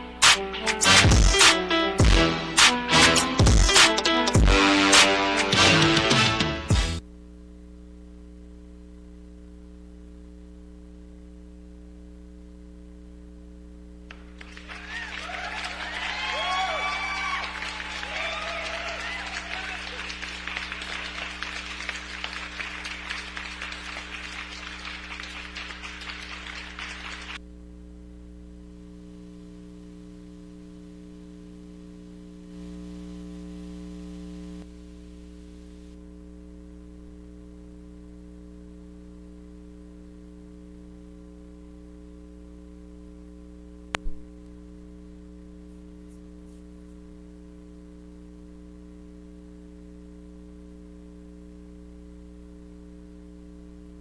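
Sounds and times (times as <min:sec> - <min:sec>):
electrical mains hum: 0:00.0 - 0:54.0
applause: 0:14.1 - 0:27.4.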